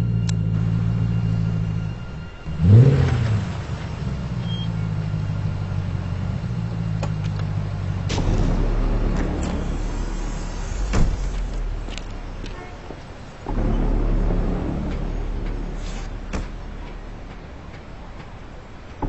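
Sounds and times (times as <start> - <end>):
car engine humming and revving: 0.0 - 19.0
car door clunk: 10.7 - 12.2.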